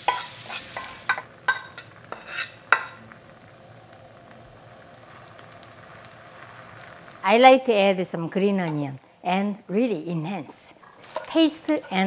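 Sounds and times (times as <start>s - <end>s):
utensil scraping bowl: 0.0s - 3.0s, 10.8s - 12.0s
batter sizzling in pan: 0.0s - 8.5s, 10.6s - 12.0s.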